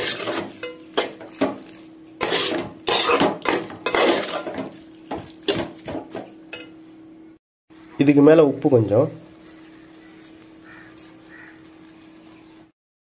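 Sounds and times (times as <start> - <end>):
metal spatula scraping a pan: 0.0 - 4.8.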